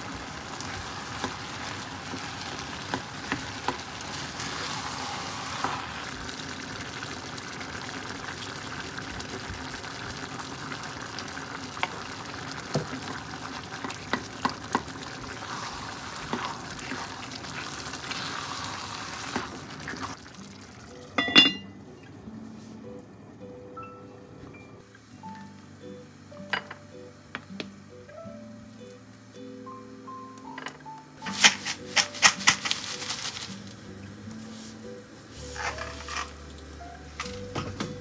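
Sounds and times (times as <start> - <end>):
meat sauce sizzling in a pot: 0.0 - 21.0
cast-iron lid clanking onto pot: 21.2 - 21.7.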